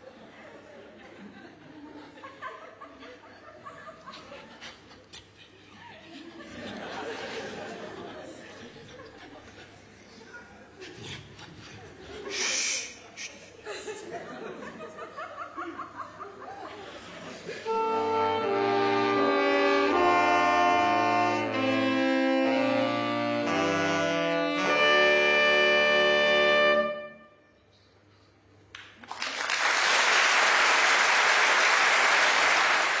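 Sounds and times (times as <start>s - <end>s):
saxophone ensemble playing chords: 17.6s - 27.5s
audience applause: 29.0s - 33.0s.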